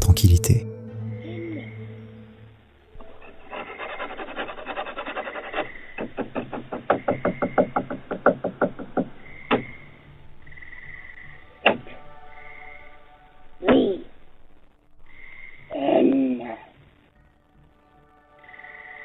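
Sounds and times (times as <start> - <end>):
rapid knocking: 6.0 - 9.7.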